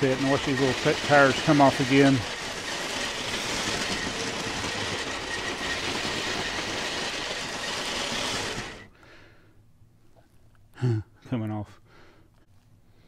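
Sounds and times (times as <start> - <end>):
toy train motor running: 0.0 - 8.9
toy train rattling on plastic track: 0.0 - 8.9.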